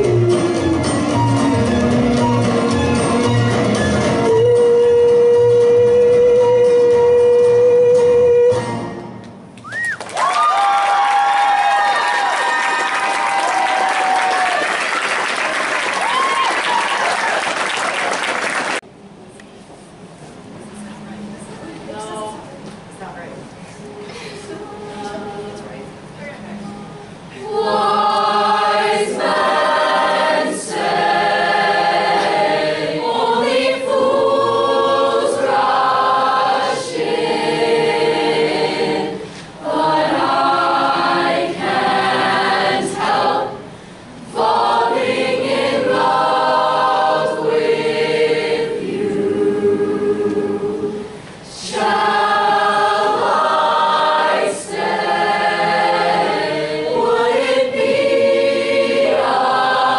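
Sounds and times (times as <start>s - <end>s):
choir singing unaccompanied: 24.4s - 26.0s, 26.6s - 59.9s.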